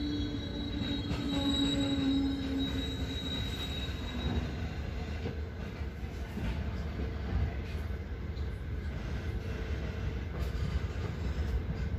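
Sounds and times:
high wheel squeal: 0:00.0 - 0:04.9
train wheels rumbling on rails: 0:00.0 - 0:11.9.

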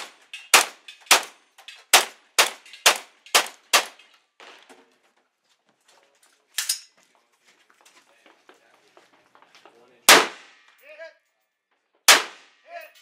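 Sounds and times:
handgun shots: 0:00.0 - 0:04.0, 0:10.1 - 0:10.6, 0:12.1 - 0:12.5
rifle shot: 0:00.0 - 0:04.0, 0:10.1 - 0:10.7, 0:12.1 - 0:12.6
gun handling noise: 0:06.2 - 0:07.2.

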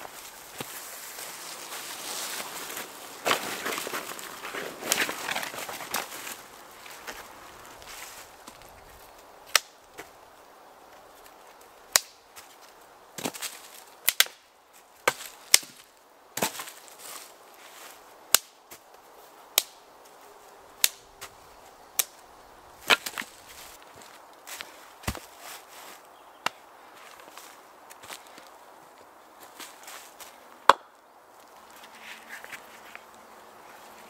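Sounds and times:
dry sticks snapping: 0:03.2 - 0:10.1, 0:11.9 - 0:12.2, 0:13.2 - 0:14.4, 0:15.0 - 0:16.6, 0:18.3 - 0:18.6, 0:19.5 - 0:19.8, 0:20.8 - 0:22.2, 0:22.8 - 0:23.4.

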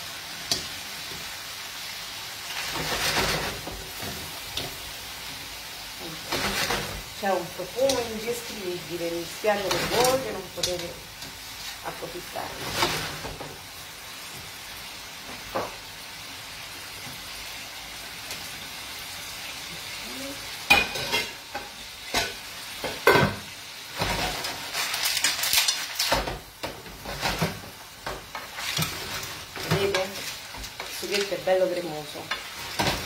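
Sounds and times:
food sizzling in frying pan: 0:00.0 - 0:33.0
stirring and scraping in pan: 0:00.2 - 0:13.8, 0:20.7 - 0:33.0.

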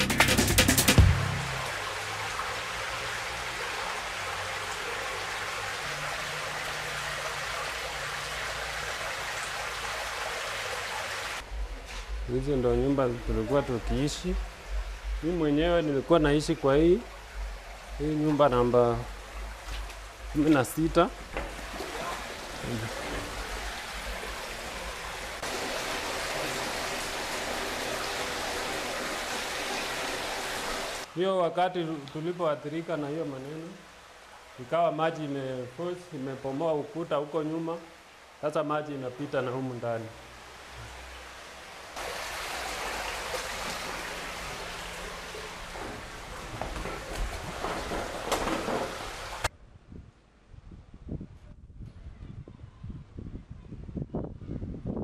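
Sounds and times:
floodwater rushing over a ledge: 0:00.8 - 0:11.5, 0:12.6 - 0:32.0, 0:32.6 - 0:49.5
water pouring through a hole: 0:42.0 - 0:49.5.

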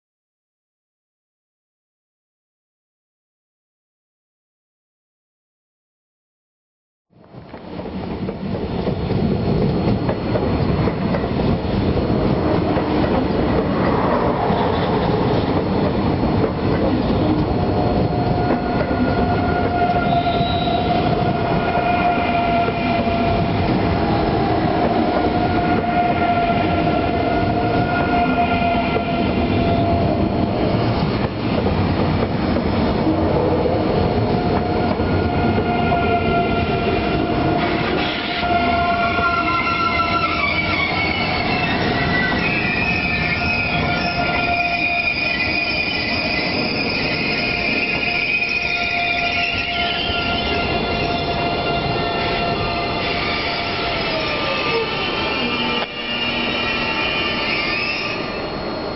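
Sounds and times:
train wheels rumbling: 0:07.2 - 0:58.9.

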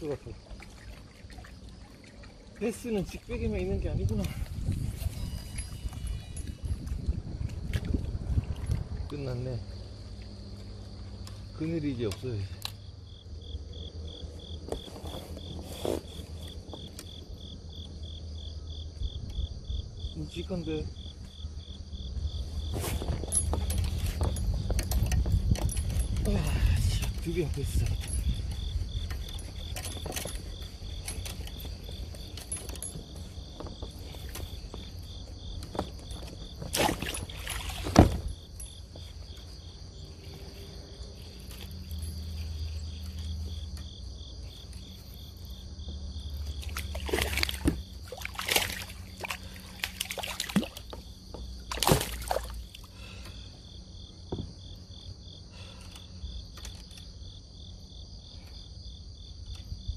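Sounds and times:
insects chirring: 0:00.0 - 0:59.9
wind rumble on microphone: 0:02.6 - 0:10.5, 0:18.8 - 0:39.4
loud splashes or knocks: 0:36.6 - 0:38.3, 0:46.6 - 0:51.0, 0:51.7 - 0:52.6.

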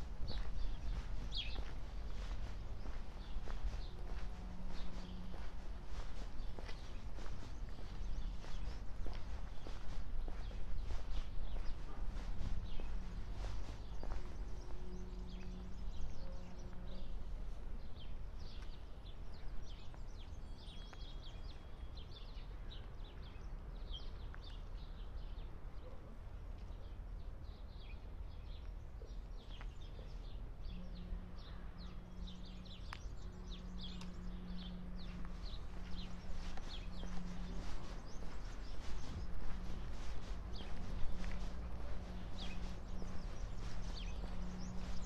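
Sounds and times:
low outdoor rumble: 0:00.0 - 0:20.6, 0:29.8 - 0:45.0
small birds chirping: 0:00.0 - 0:45.0.

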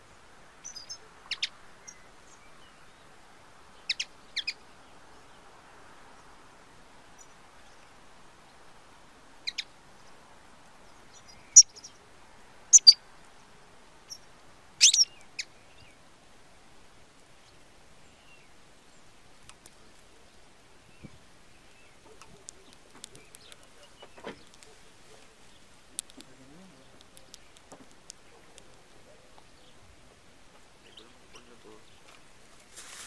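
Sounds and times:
bird call notes: 0:12.7 - 0:13.0, 0:14.8 - 0:15.6.

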